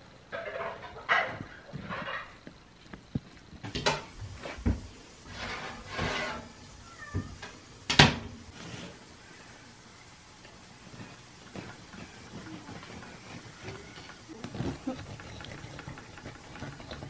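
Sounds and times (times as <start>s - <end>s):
metal baking tray scraping: 0.3s - 2.4s, 5.2s - 6.6s, 8.5s - 9.1s.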